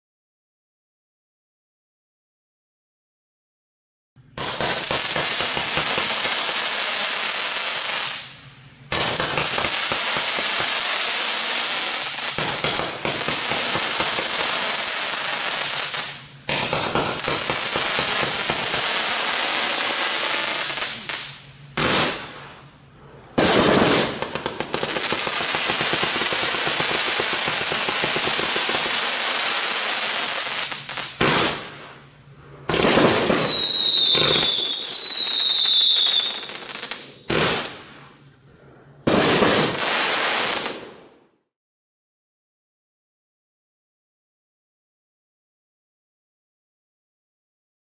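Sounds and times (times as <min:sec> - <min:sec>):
firework cake firing volleys: 0:04.3 - 0:38.2, 0:39.1 - 0:41.1
falling whistles: 0:32.7 - 0:37.3.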